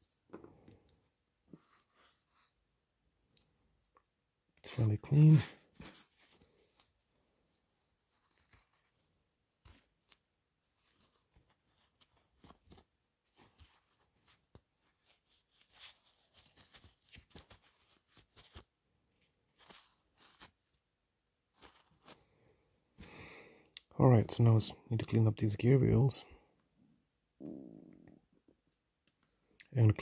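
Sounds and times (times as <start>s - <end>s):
paper towel rustling and crinkling: 5.2s - 20.8s, 21.5s - 22.2s.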